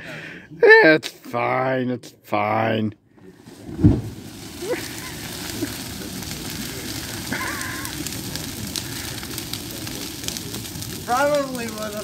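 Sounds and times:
bonfire roaring with crackles: 3.1s - 12.0s.

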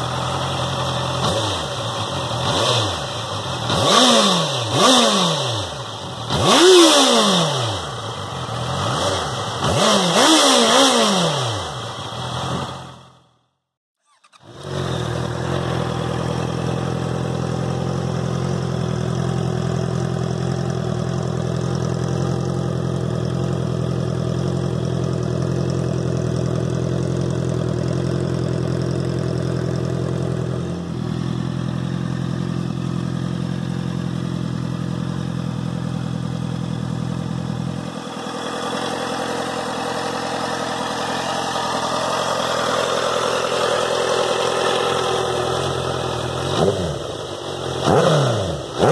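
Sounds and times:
motorcycle engine idling: 0.0s - 13.4s, 14.1s - 48.9s.

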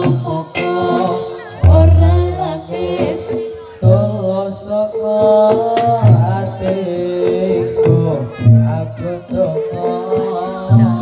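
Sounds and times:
held pitched instruments: 0.0s - 11.0s
wavering singing voice: 0.0s - 11.0s
deep low drum stroke: 1.6s - 4.2s.

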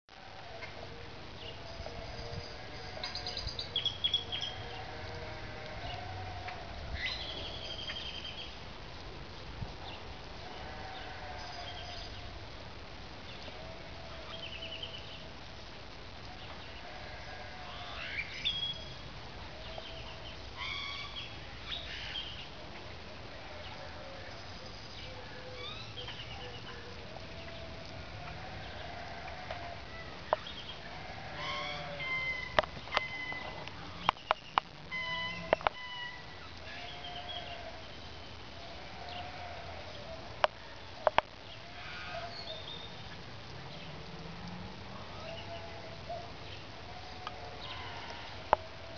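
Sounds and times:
small birds chirping: 1.3s - 8.6s, 23.4s - 44.2s
sheep bleating: 1.7s - 3.4s, 4.2s - 6.8s, 10.4s - 12.2s, 16.8s - 18.2s, 23.3s - 24.5s, 27.5s - 30.1s, 30.8s - 34.0s, 34.9s - 37.9s, 38.6s - 39.9s.

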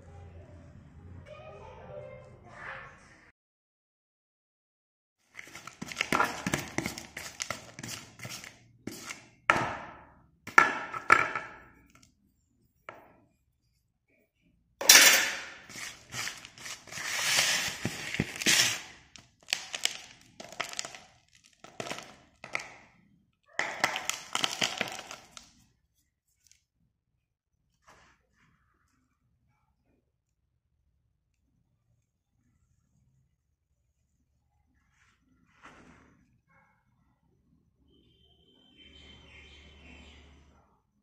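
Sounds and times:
pencil pieces clattering in plastic tub: 14.9s - 22.8s, 23.6s - 25.4s.

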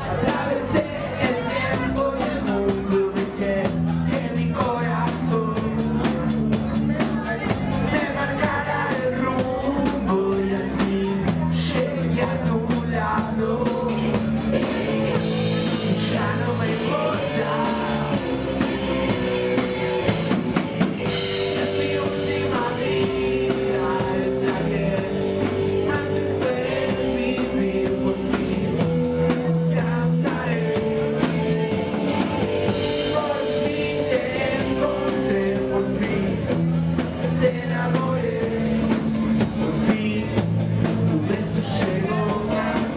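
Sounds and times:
man singing: 0.0s - 42.9s
punk rock band playing: 0.0s - 42.9s.

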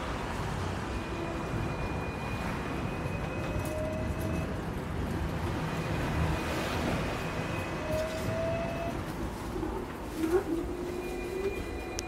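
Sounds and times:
tram wheels rumbling on rails: 0.0s - 12.0s.

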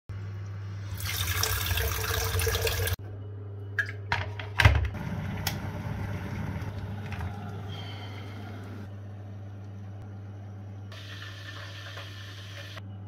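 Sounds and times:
tap water running into kettle: 0.9s - 3.0s, 5.3s - 7.7s, 11.0s - 12.8s.

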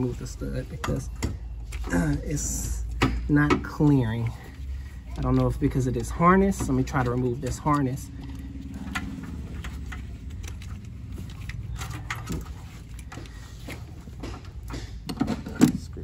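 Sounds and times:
low hum: 0.0s - 14.8s
plastic connectors clicking and rattling: 5.1s - 15.8s.

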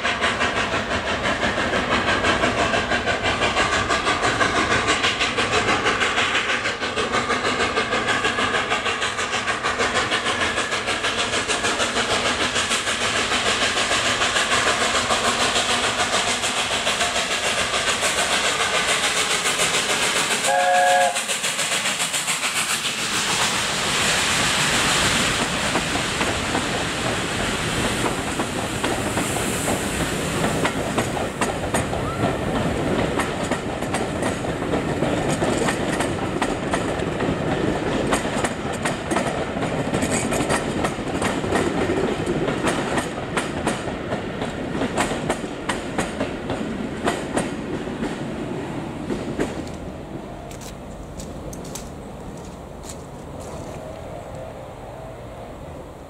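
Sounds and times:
train wheels clattering over rail joints: 0.0s - 53.9s
steam train whistle blast: 20.3s - 21.6s.

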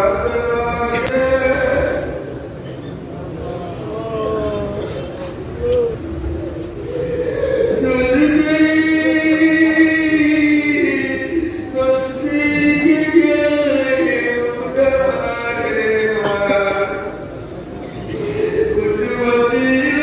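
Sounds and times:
man chanting melodically: 0.0s - 2.5s, 6.8s - 17.4s, 18.0s - 20.0s.

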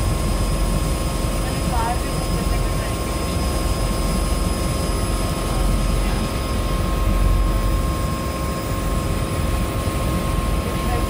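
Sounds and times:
floatplane engine and propeller drone: 0.0s - 11.0s.

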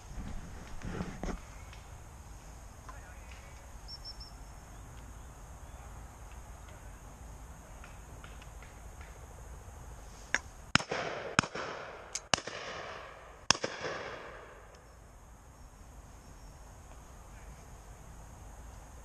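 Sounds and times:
shotgun shots with echo: 10.7s - 14.6s.

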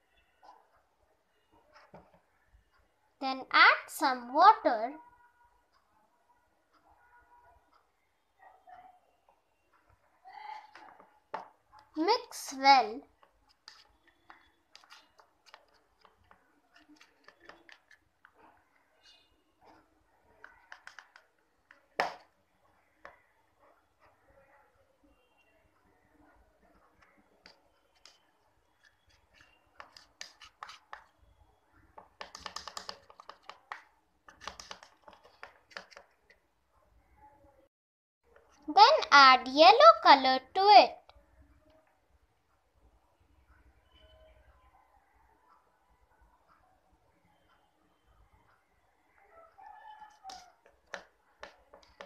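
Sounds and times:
spoon scraping plastic bowl: 13.5s - 18.1s, 27.4s - 31.2s, 32.0s - 36.3s
spoon tapping plastic bowl: 32.0s - 36.1s.

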